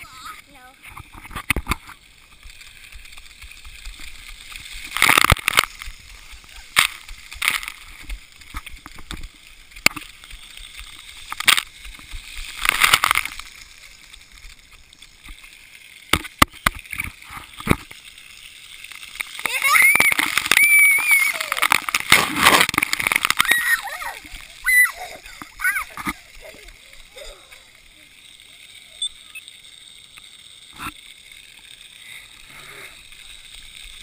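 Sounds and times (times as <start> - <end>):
water splashing on camera: 0.0 - 34.0
child calling out: 19.5 - 21.6, 23.4 - 25.9.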